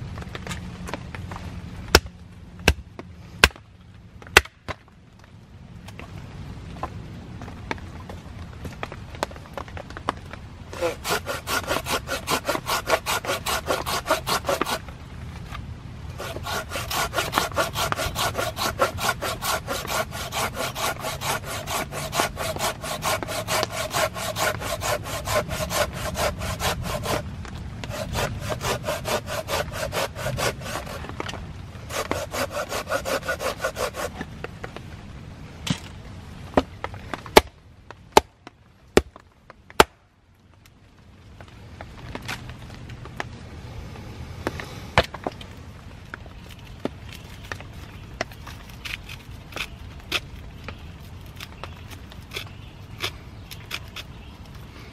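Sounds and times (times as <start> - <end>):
hand saw cutting log: 10.7 - 14.9, 16.1 - 34.2, 51.3 - 54.1.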